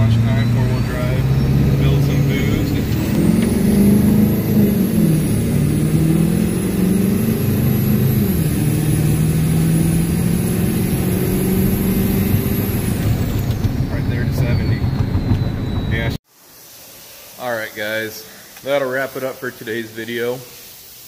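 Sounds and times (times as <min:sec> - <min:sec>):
diesel engine at full throttle: 0:00.0 - 0:16.2
turbocharger whistle: 0:00.0 - 0:16.2.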